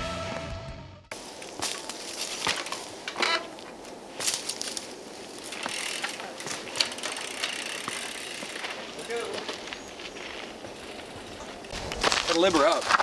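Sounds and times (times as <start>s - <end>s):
tyres scuffing dirt: 1.1s - 13.0s
bike freehub clicking: 5.4s - 9.2s.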